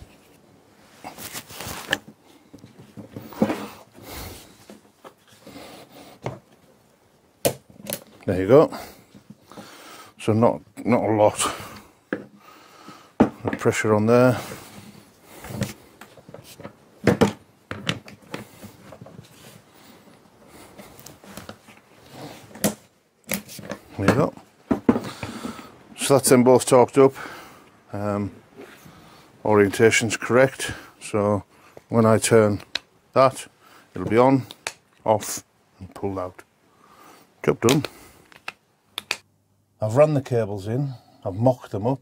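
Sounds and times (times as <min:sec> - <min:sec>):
handling noise on workbench: 0:14.5 - 0:19.7.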